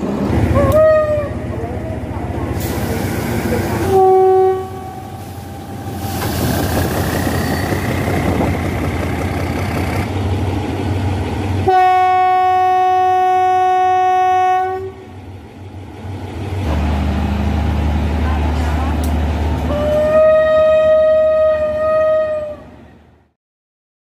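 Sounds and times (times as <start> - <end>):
locomotive engine whining: 0.0 - 15.2
locomotive horn blast: 0.5 - 1.4, 3.6 - 6.2, 11.6 - 15.2, 19.7 - 22.8.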